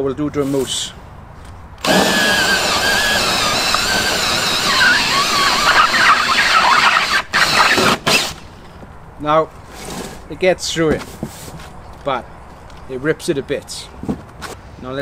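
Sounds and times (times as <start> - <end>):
hole saw squealing through foam: 1.8 - 8.4.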